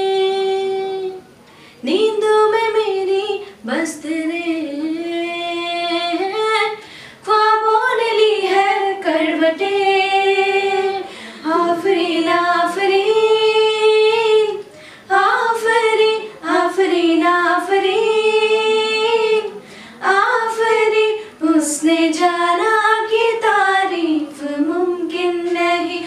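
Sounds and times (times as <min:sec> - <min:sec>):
women singing unaccompanied: 0:00.0 - 0:26.0
breaths between phrases: 0:14.7 - 0:15.1, 0:19.6 - 0:20.0.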